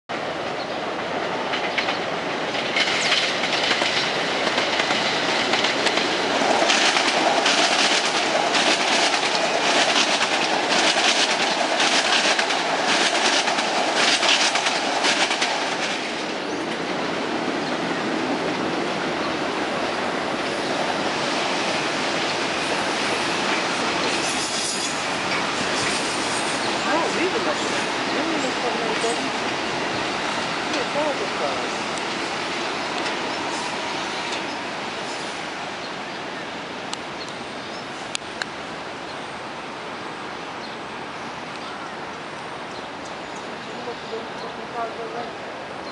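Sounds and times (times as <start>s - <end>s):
train rumbling: 0.1s - 45.9s
train wheels clattering over rail joints: 1.5s - 16.8s.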